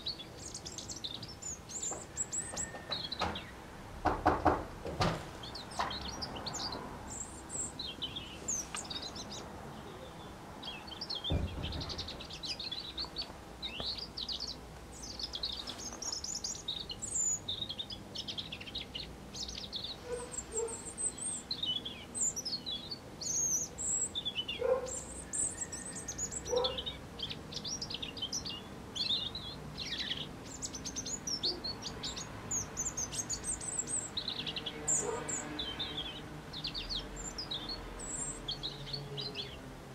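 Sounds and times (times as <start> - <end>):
robin singing: 0.0 - 4.6, 5.4 - 39.8.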